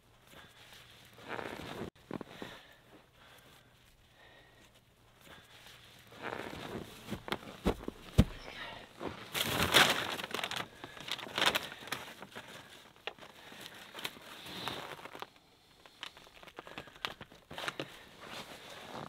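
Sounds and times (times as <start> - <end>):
tent fabric rustling: 0.1 - 19.0
snow crunching: 0.3 - 3.4.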